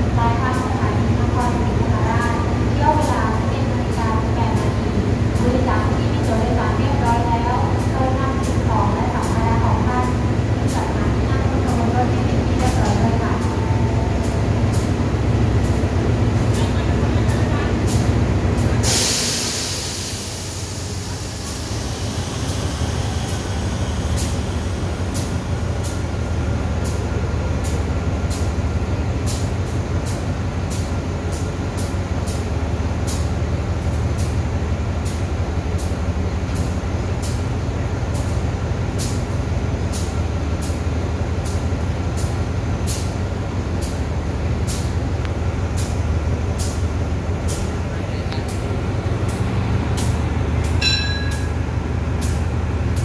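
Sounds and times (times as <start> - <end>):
locomotive engine idling: 0.0 - 53.0
air hiss: 18.8 - 25.3.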